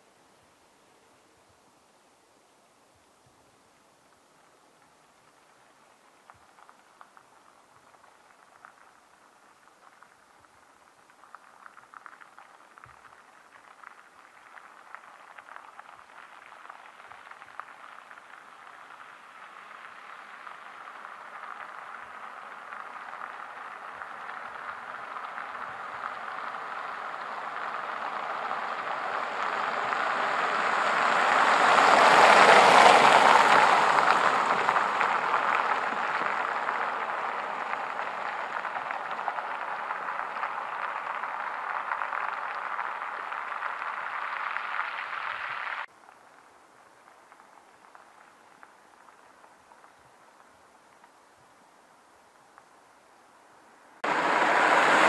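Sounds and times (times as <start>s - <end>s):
car tyre road noise: 0.0s - 55.0s.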